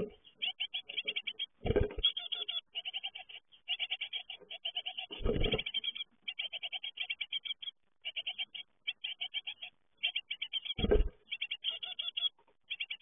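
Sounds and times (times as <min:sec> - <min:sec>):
nestlings begging calls: 0:00.0 - 0:13.0.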